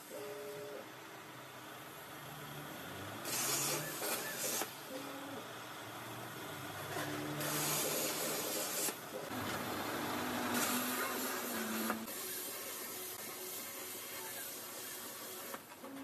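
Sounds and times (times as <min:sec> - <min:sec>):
plasma torch hissing: 0:03.2 - 0:04.8, 0:07.4 - 0:09.0, 0:10.4 - 0:15.6.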